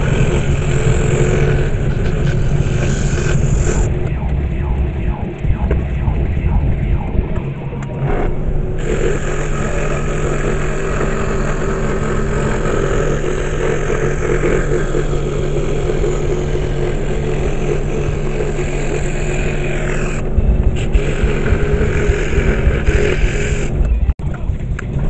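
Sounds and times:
scroll saw cutting board: 0:00.0 - 0:04.3, 0:08.0 - 0:23.8.

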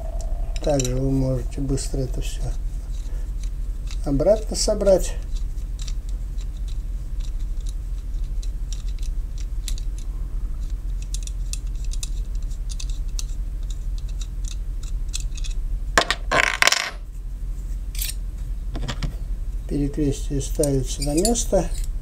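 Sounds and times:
metallic scrape: 0:00.0 - 0:03.3
low hum: 0:00.0 - 0:22.0
knife fittings clinking: 0:18.0 - 0:18.2, 0:20.6 - 0:21.9.

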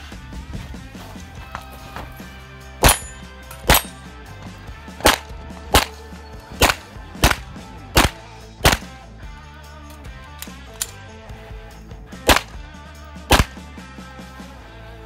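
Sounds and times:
pistol shots: 0:02.8 - 0:04.0, 0:05.0 - 0:06.0, 0:06.6 - 0:09.0, 0:12.2 - 0:12.6, 0:13.3 - 0:13.6.

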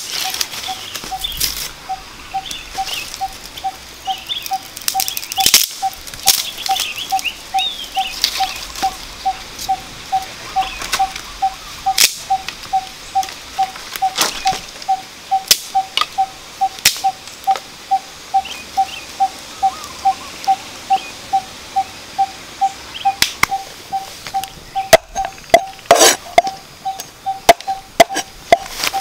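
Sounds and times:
animal calling with clear note: 0:00.1 - 0:29.0
fire crackling and snapping: 0:02.5 - 0:09.7, 0:11.9 - 0:16.2.

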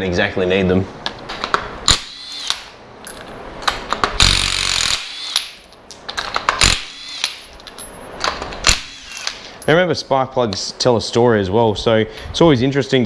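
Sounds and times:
power tool burst: 0:04.2 - 0:05.6, 0:06.6 - 0:07.5, 0:08.6 - 0:09.4.

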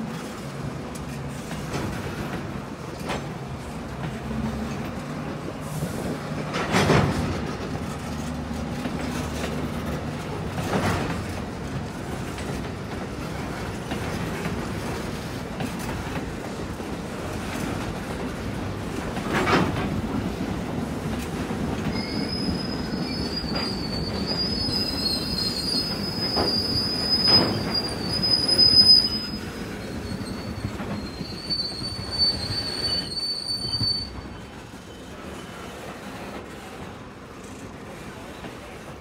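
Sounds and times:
train rolling: 0:00.0 - 0:39.0
train wheels squealing: 0:21.8 - 0:36.8.

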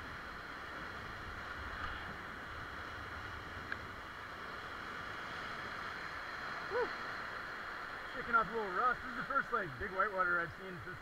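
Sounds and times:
whitewater river rushing: 0:00.0 - 0:11.0.

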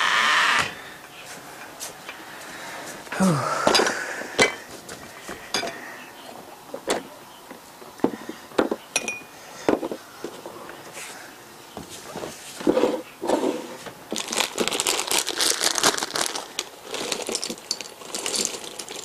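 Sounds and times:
glass ringing: 0:08.9 - 0:09.3
glasses clinking on wooden table: 0:08.9 - 0:09.3.

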